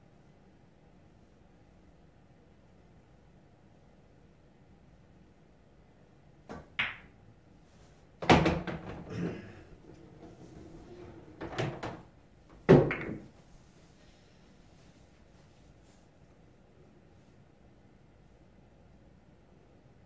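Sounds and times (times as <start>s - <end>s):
cue striking ball: 6.5s - 7.1s, 12.6s - 13.3s
pool balls knocking and dropping: 6.5s - 7.2s, 8.2s - 13.6s.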